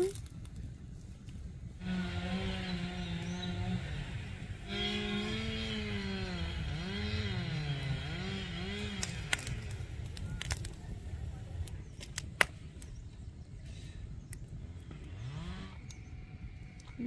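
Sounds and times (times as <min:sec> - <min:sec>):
wood fire crackling and popping: 0:00.0 - 0:01.7, 0:07.7 - 0:13.2
motor droning: 0:01.6 - 0:11.8, 0:14.5 - 0:17.0.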